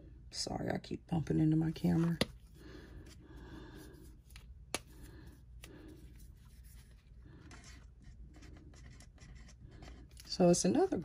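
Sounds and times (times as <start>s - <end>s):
marker scratching on card: 6.5s - 10.1s.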